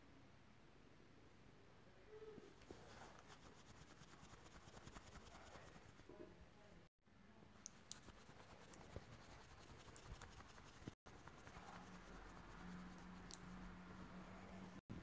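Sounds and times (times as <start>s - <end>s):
scratchy rustles: 2.6s - 6.1s, 7.7s - 14.1s.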